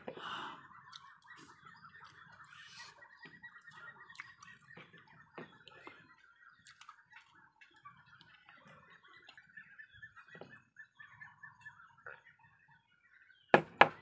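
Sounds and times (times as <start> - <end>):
chewing and fingers on plate: 6.6 - 7.3.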